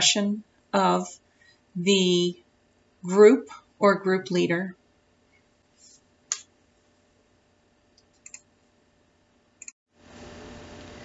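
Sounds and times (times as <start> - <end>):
low hiss of room noise: 0.0 - 11.0
sharp clicks: 8.0 - 8.5.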